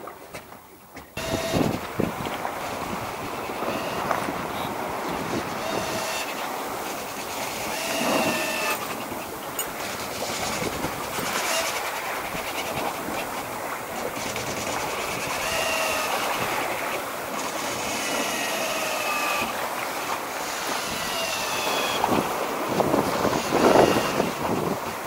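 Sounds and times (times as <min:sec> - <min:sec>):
rush of wind and water: 0:00.0 - 0:25.0
electric motor whining: 0:01.2 - 0:09.2, 0:15.0 - 0:19.6, 0:20.3 - 0:24.8.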